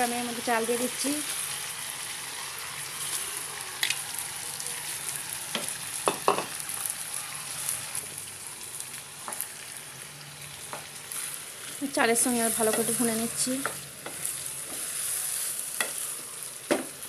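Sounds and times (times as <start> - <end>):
food sizzling in hot oil: 0.0 - 17.0
utensils knocking against pan: 5.6 - 6.6.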